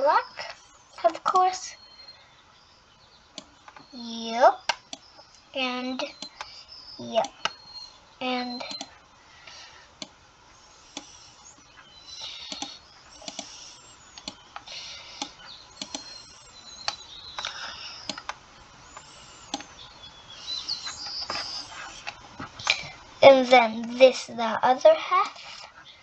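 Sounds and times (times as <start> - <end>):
faint high chirping: 0.0 - 26.0
computer mouse clicks: 6.2 - 6.6, 8.6 - 8.9, 10.9 - 11.2, 12.4 - 16.2, 16.8 - 18.4, 19.0 - 19.7.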